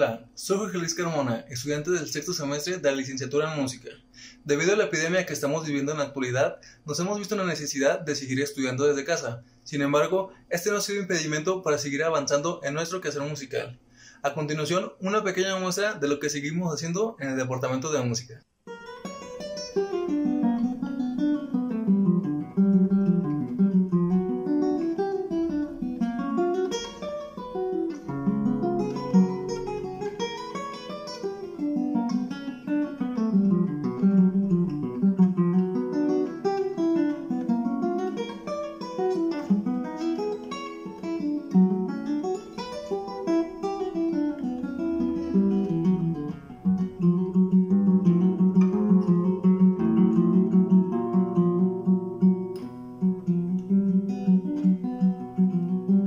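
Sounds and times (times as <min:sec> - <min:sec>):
classical guitar fingerpicking: 0:18.7 - 0:56.0.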